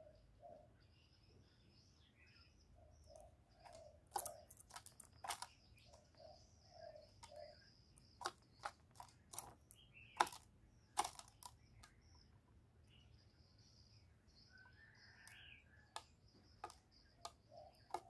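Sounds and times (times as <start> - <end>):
clicks and taps in wire cage: 3.1 - 6.2, 7.0 - 12.0, 15.2 - 18.0.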